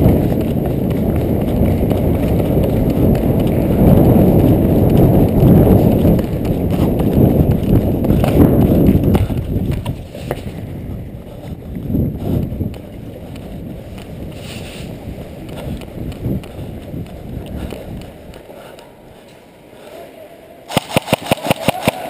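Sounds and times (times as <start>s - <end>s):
running footsteps: 0.0s - 20.0s.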